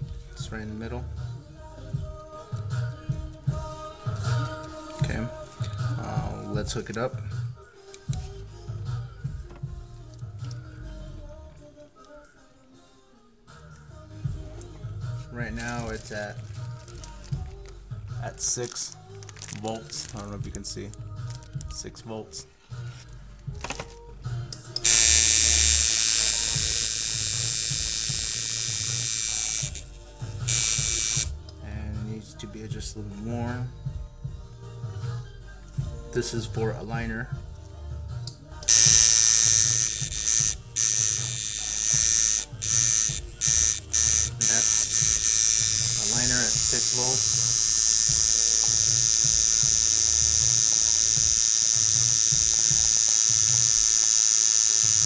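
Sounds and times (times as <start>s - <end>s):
tattoo machine buzzing: 24.8s - 31.3s, 38.6s - 55.0s.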